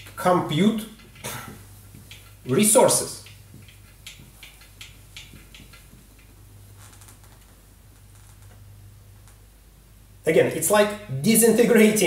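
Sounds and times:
marker writing on whiteboard: 0.0s - 8.4s.

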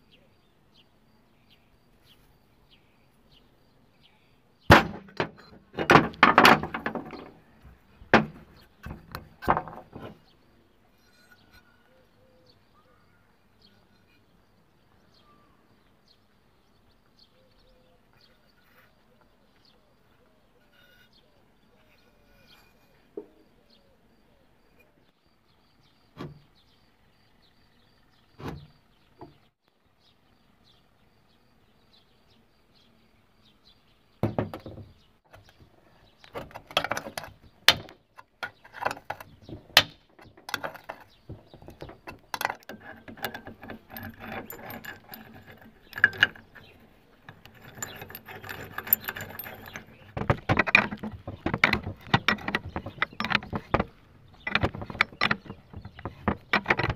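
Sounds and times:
metal clinks and rattles: 36.4s - 56.9s.

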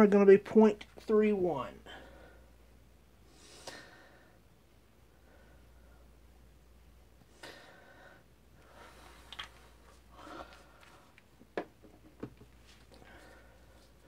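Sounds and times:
soft rustles: 8.9s - 14.0s.

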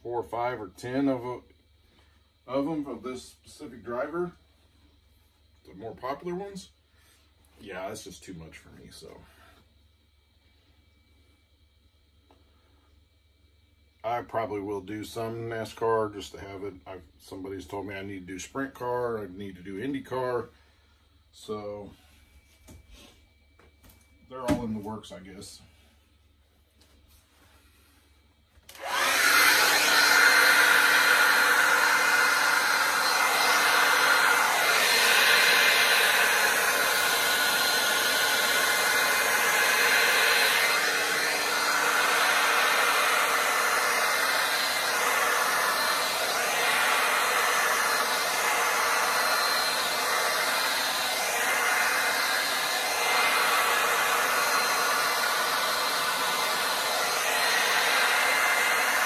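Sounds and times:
hair dryer running: 28.7s - 59.0s.

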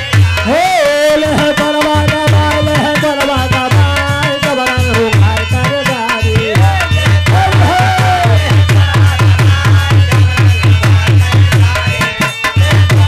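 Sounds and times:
dholak drum beating: 0.0s - 13.0s
harmonium: 0.0s - 13.0s
man singing long note: 0.4s - 9.9s.

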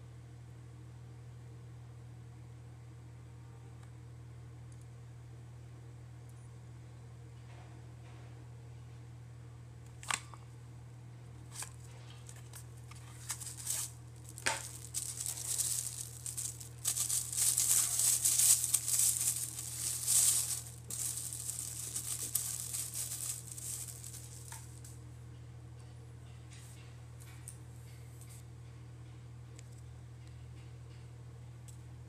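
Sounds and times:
plastic bag crinkling: 11.5s - 24.9s.

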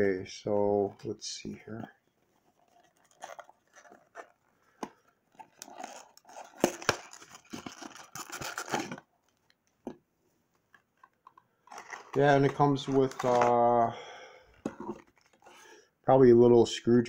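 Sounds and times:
cardboard box rustling: 2.4s - 9.1s, 11.0s - 13.8s.

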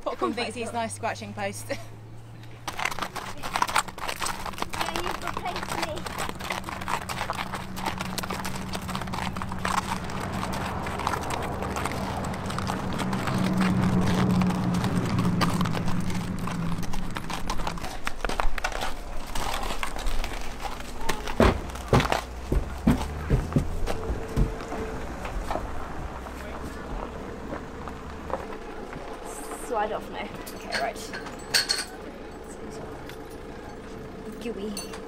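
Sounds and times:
hooves on gravel: 2.3s - 31.1s
sharp knocks: 21.2s - 24.8s.

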